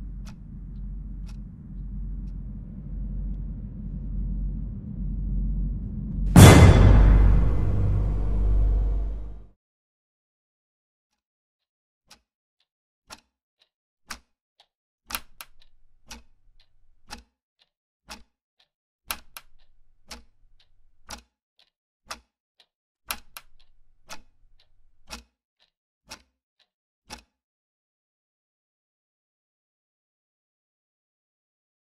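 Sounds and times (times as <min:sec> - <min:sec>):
clock ticking: 0:00.0 - 0:07.0, 0:14.1 - 0:14.3, 0:15.1 - 0:17.3, 0:18.1 - 0:18.3, 0:19.1 - 0:22.3, 0:23.1 - 0:26.3, 0:27.1 - 0:27.3
low hum: 0:00.0 - 0:09.5.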